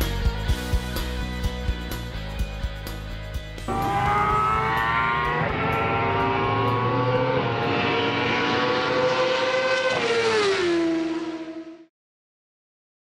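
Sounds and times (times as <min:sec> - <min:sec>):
race car engine at high revs: 0:03.7 - 0:11.9.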